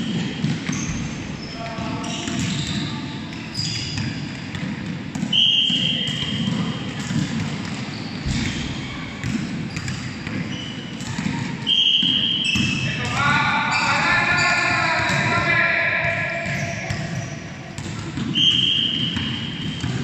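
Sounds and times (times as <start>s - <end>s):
shoe squeaks: 0.0s - 4.2s, 5.4s - 6.8s, 7.8s - 9.0s, 9.7s - 11.0s, 11.7s - 13.0s, 13.6s - 14.9s, 16.5s - 17.5s, 18.3s - 20.0s
basketballs bouncing on gym floor: 0.0s - 20.0s.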